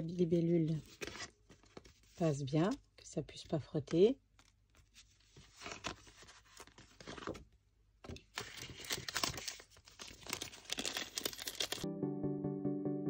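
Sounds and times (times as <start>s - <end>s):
paper rustling: 0.0s - 2.8s, 4.3s - 11.8s
plastic sheet crinkling: 8.3s - 11.9s.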